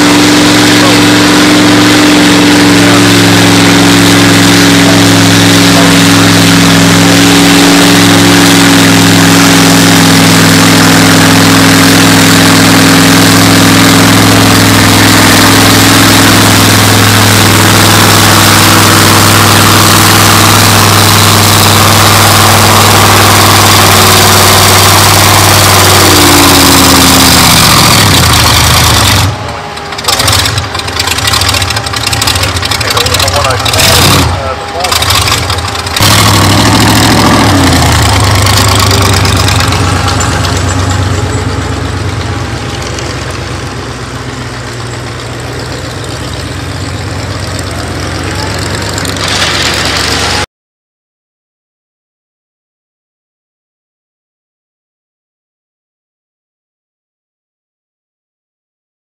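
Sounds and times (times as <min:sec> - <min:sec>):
tractor engine at high revs: 0:00.0 - 0:50.5.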